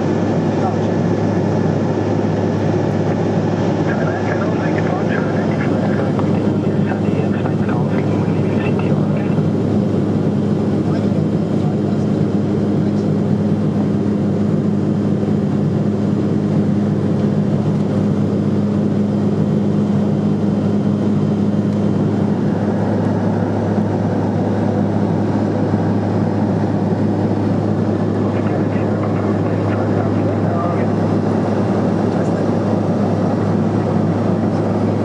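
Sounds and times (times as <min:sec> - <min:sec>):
propeller aircraft engine drone: 0:00.0 - 0:35.0.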